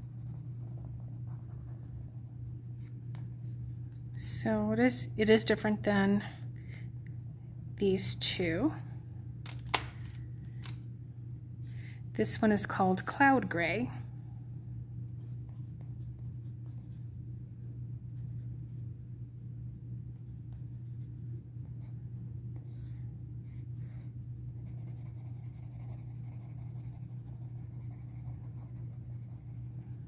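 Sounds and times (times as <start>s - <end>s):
pencil scratching on paper: 0.0s - 2.9s, 22.7s - 30.0s
low hum: 0.0s - 30.0s.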